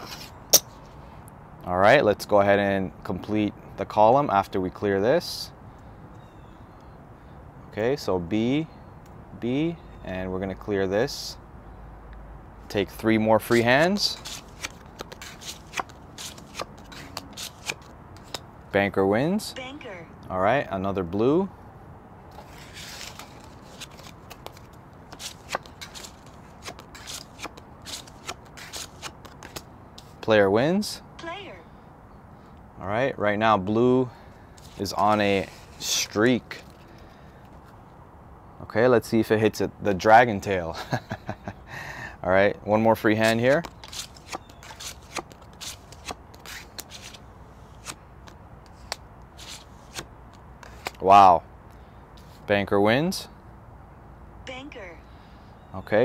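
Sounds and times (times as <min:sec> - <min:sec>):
playing cards dealt on wooden table: 0:00.0 - 0:00.9, 0:13.4 - 0:18.4, 0:22.3 - 0:30.3, 0:34.6 - 0:37.8, 0:43.2 - 0:51.1.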